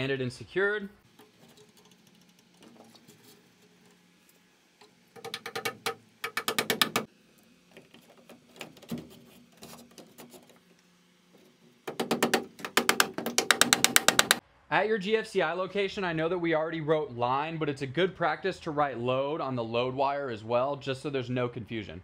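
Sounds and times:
hammer tapping staples into wood: 5.2s - 7.1s, 11.9s - 14.4s.

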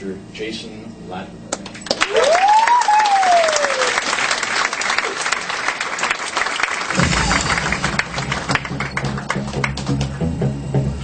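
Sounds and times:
audience applauding: 1.6s - 10.3s
music with low bass line: 7.0s - 11.0s.

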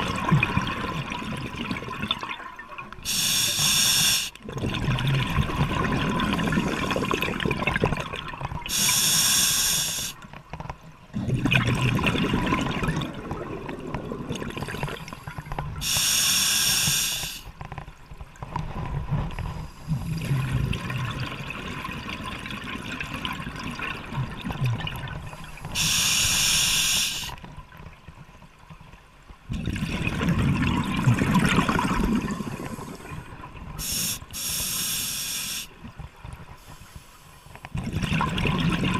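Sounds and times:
regulator hissing inhalations: 3.1s - 4.4s, 8.7s - 10.2s, 15.8s - 17.5s, 25.7s - 27.4s, 33.8s - 35.7s.

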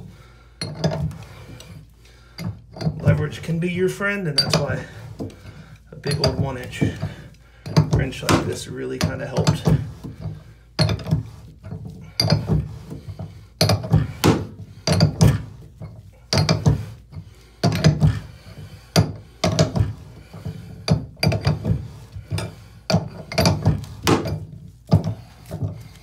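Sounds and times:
wrench clunking against plastic tool: 17.6s - 18.2s.

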